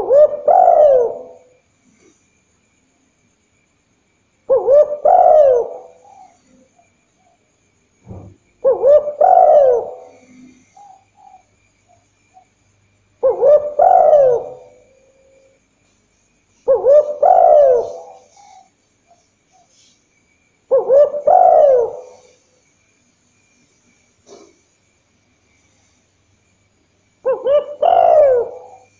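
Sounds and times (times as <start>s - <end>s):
dove cooing: 0.0s - 1.5s, 4.5s - 6.7s, 8.1s - 11.5s, 13.2s - 15.1s, 16.7s - 18.7s, 20.7s - 22.4s, 27.2s - 28.9s.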